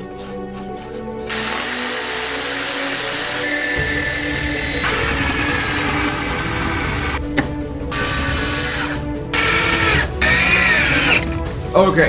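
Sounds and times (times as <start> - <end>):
background music: 0.0 - 12.0
jigsaw cutting wood: 0.9 - 7.2, 7.9 - 11.3
drill boring into wood: 1.2 - 7.2, 7.9 - 11.4.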